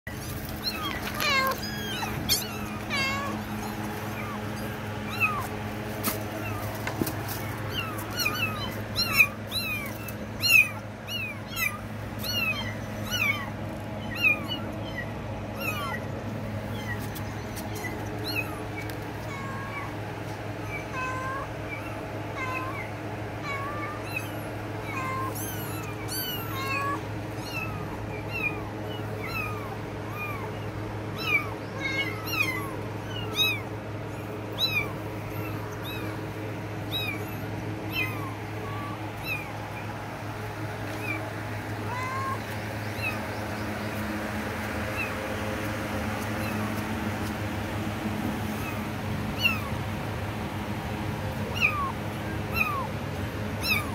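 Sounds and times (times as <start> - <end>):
kittens mewing: 0.1 - 53.9
steady low hum: 0.1 - 53.9.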